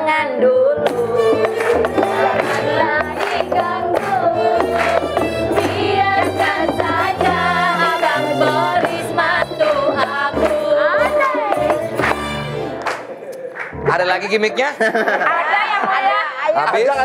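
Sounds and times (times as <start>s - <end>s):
women singing together: 0.0s - 12.5s
hand-beaten frame drums: 0.9s - 12.4s.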